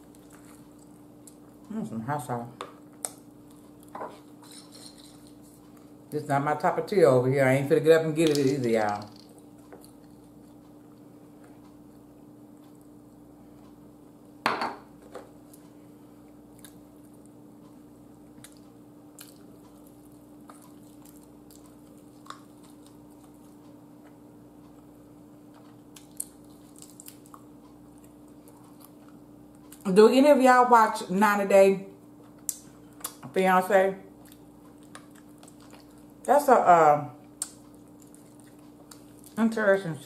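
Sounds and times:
person chewing: 0:00.0 - 0:01.7, 0:03.0 - 0:06.0, 0:09.2 - 0:13.0, 0:15.3 - 0:29.8, 0:34.1 - 0:36.3, 0:37.2 - 0:39.4
faint steady hum: 0:00.0 - 0:40.0.

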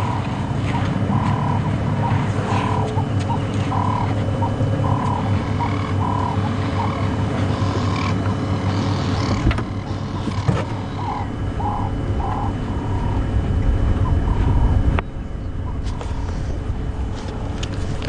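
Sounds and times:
small animal calling: 0:00.0 - 0:13.3
steady low hum: 0:00.0 - 0:18.0.

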